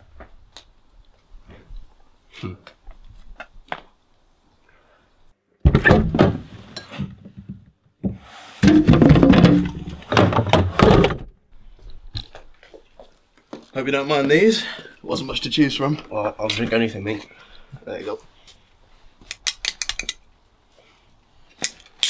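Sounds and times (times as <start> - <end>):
bottles rattling inside fridge: 8.6 - 11.3.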